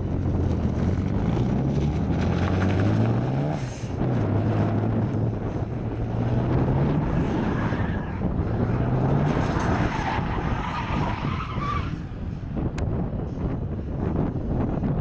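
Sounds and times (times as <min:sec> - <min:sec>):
car engine revving: 0:00.0 - 0:11.9.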